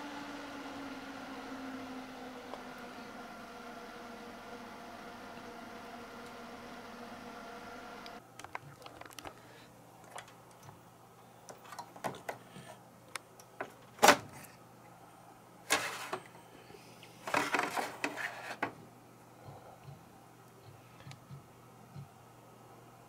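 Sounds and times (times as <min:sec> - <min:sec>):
low fan hum: 0:00.0 - 0:13.6
fan whine: 0:00.0 - 0:23.0.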